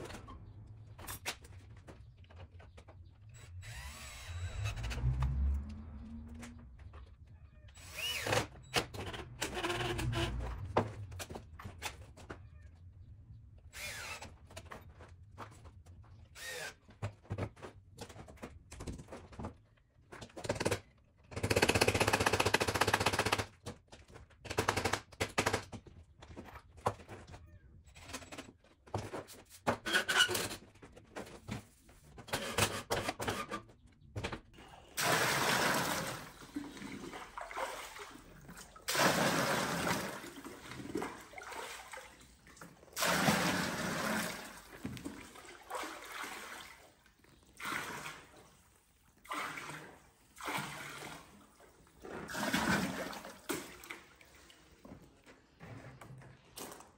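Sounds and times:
water pouring from jug: 35.0 - 48.5, 52.2 - 54.7.

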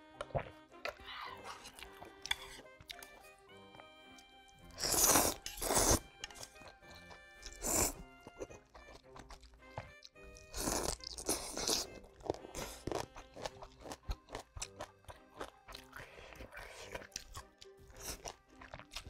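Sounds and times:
noodles being slurped: 4.7 - 8.0, 10.4 - 13.3
chewing: 4.7 - 19.0.

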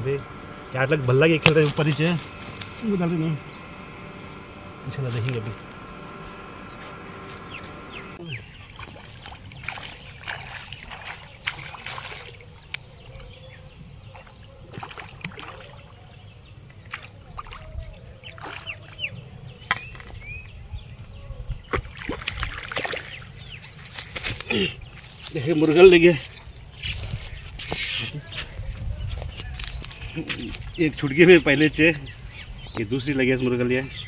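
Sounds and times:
fish splashing in water: 8.4 - 20.1, 21.6 - 25.2.

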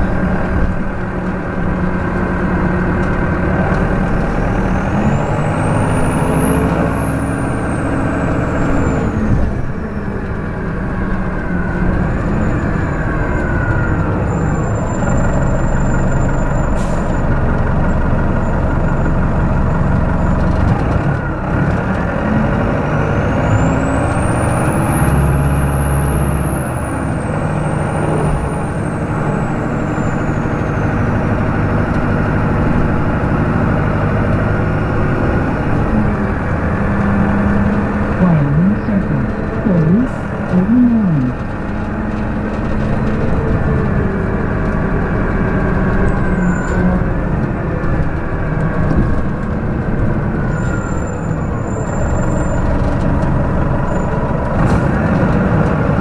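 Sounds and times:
bus diesel engine running: 0.0 - 56.0
high whine: 38.2 - 41.5.

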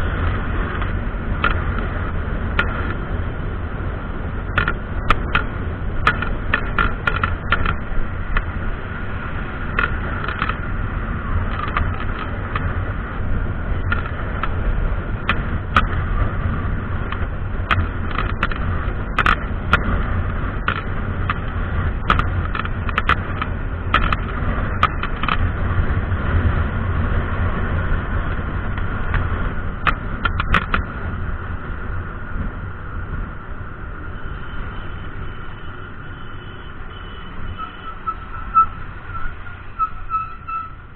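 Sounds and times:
motorcycle engine and wind rumble: 0.0 - 40.9
short clicks and knocks: 4.5 - 8.5, 20.6 - 25.4.

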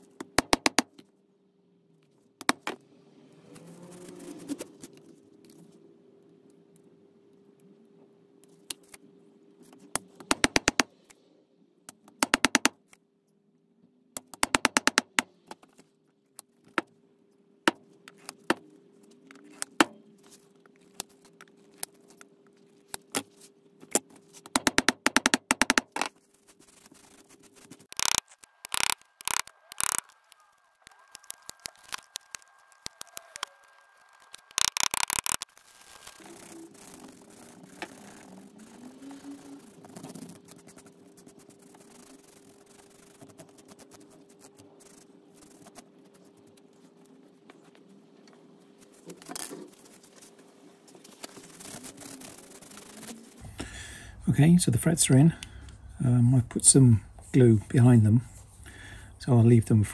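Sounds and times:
sharp snaps of nippers cutting wire: 27.9 - 30.1.

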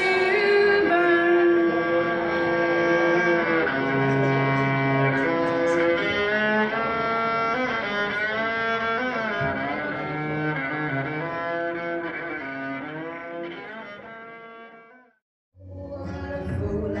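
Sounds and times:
solo fiddle bowed notes: 0.0 - 15.0.

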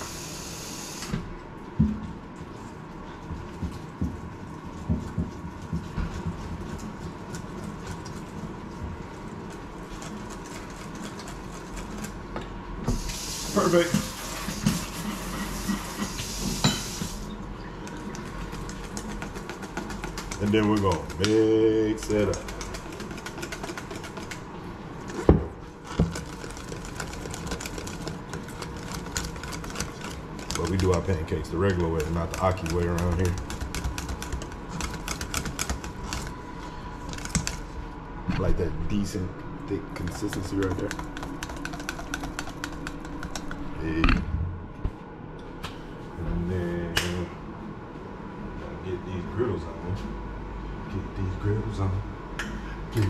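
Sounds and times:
faint hum: 0.0 - 53.0
whisk ticking against metal bowl: 17.9 - 24.4, 26.2 - 36.3, 40.0 - 43.6.

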